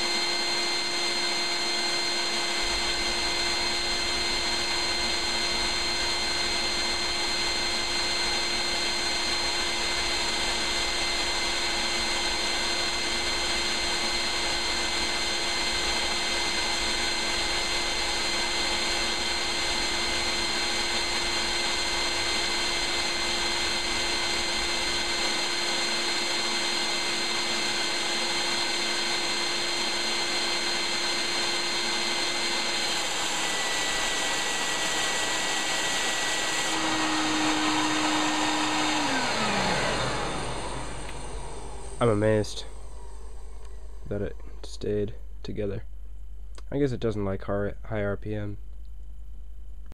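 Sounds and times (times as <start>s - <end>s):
shop vacuum whining: 0.0s - 45.1s.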